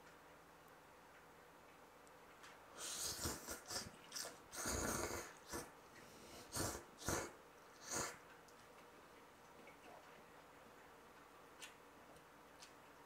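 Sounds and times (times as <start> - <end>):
person slurping noodles: 2.8 - 5.7, 6.4 - 8.2.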